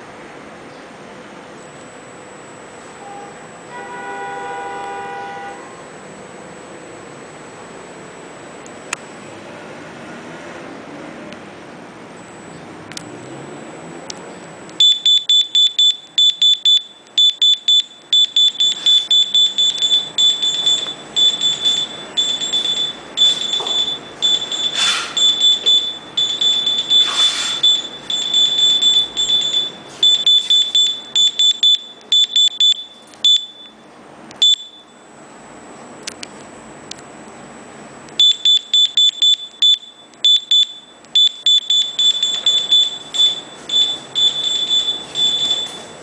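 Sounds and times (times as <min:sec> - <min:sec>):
handheld reader beeping: 0:14.8 - 0:33.8, 0:34.4 - 0:35.0, 0:38.2 - 0:46.0.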